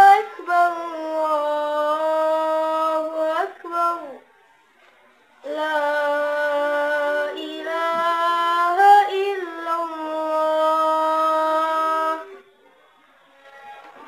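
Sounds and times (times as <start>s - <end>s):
boy chanting call to prayer: 0.0s - 4.2s, 5.4s - 12.4s.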